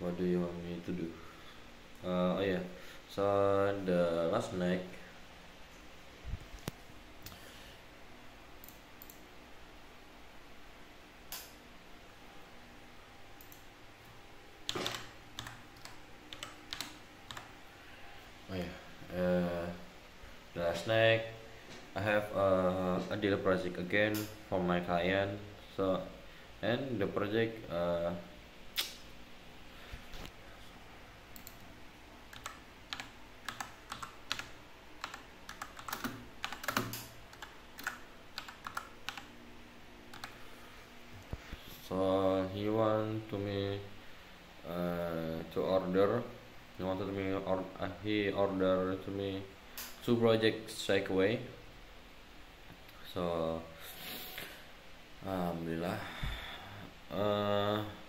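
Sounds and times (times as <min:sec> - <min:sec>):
keyboard keystrokes: 0:14.7 - 0:17.5
typing on computer keyboard: 0:14.7 - 0:17.5, 0:32.3 - 0:39.3, 0:40.1 - 0:40.4.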